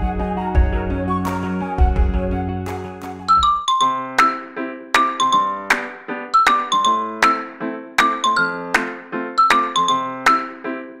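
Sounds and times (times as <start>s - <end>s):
bell-like background music: 3.3s - 10.8s.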